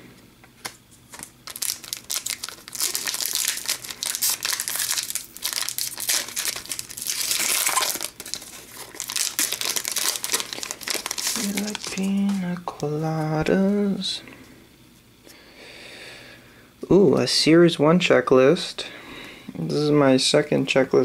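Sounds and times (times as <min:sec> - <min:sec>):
plastic wrapper crinkling and tearing: 0:01.1 - 0:12.5.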